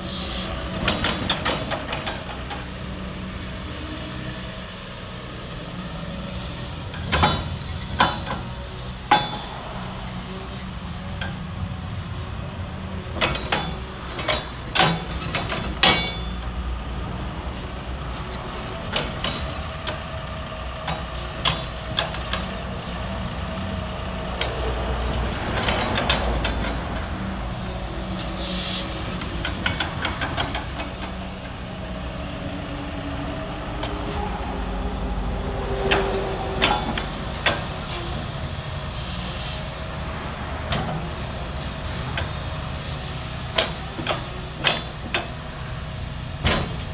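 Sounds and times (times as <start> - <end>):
steel tracks clanking: 0.0 - 4.3, 6.3 - 46.9
diesel engine drone: 0.0 - 46.9
short hiss: 28.3 - 29.0.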